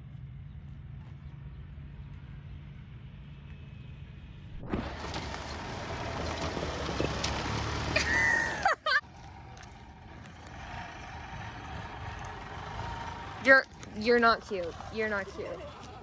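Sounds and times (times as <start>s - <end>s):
golf cart rumbling on gravel: 4.5s - 16.0s.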